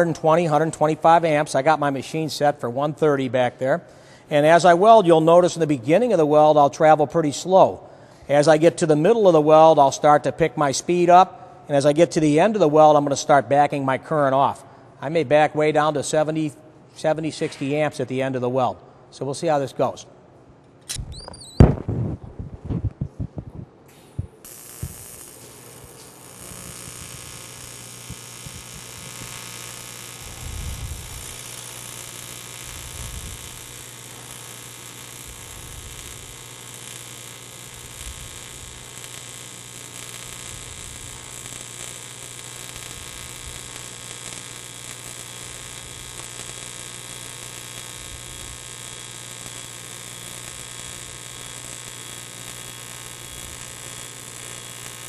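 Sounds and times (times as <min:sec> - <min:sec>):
welding arc buzzing: 0:00.0 - 0:02.3, 0:23.9 - 0:55.0.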